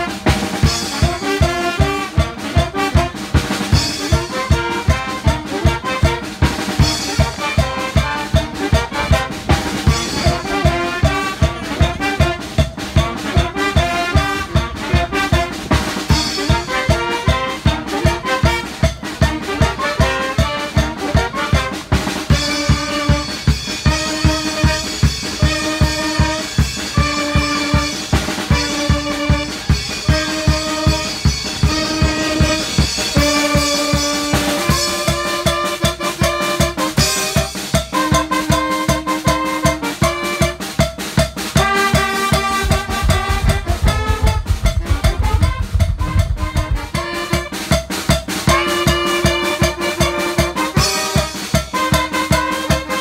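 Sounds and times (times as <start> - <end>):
brass band playing dance music: 0.0 - 53.0
steady drum beat: 0.0 - 53.0
low rumble: 42.7 - 47.0.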